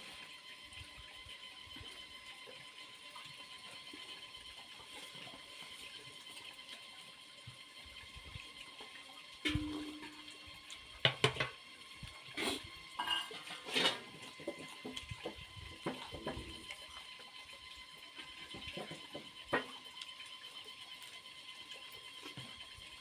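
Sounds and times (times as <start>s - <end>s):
mug and plate clinking: 13.0s - 13.5s.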